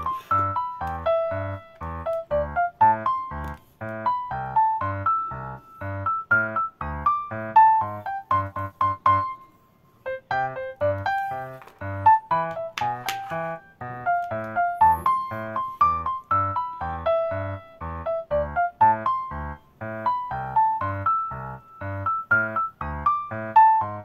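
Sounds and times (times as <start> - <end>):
piano music: 0.0 - 24.0.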